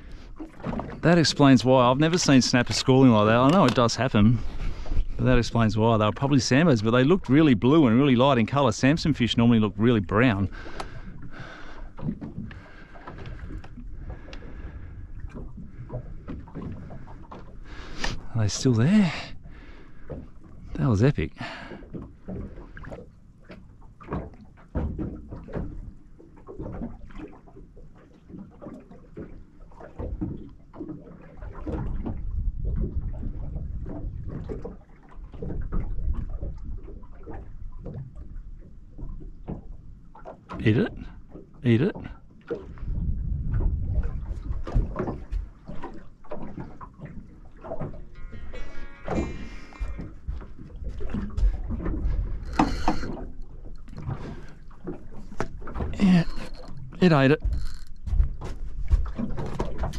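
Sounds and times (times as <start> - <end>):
water sloshing against boat hull: 0.0 - 59.9
wind rumble: 42.7 - 45.5.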